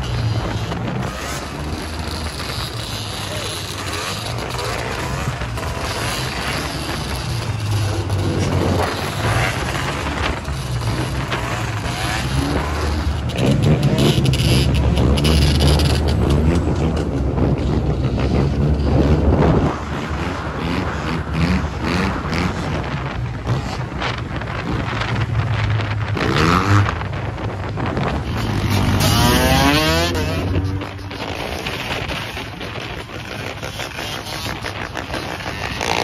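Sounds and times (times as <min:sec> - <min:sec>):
motorbike engines revving: 0:00.0 - 0:36.0.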